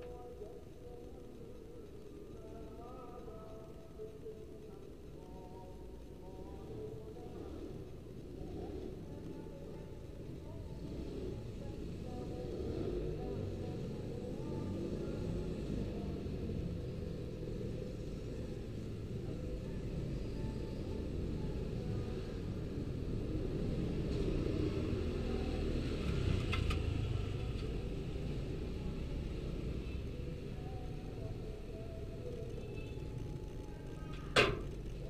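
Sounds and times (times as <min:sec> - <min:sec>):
faint clicks: 0:00.0 - 0:10.6
outdoor background rumble: 0:00.0 - 0:35.0.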